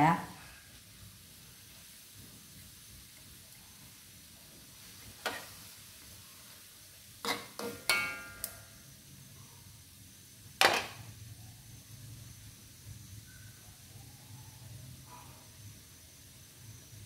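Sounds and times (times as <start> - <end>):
faint sizzling: 0.0 - 17.0
metal spatula clanking on wok: 7.2 - 8.7, 10.6 - 11.0.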